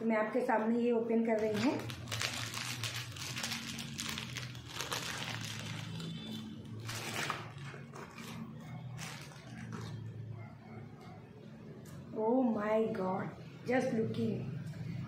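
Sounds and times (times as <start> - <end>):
plastic and tissue paper crinkling: 1.3 - 10.1.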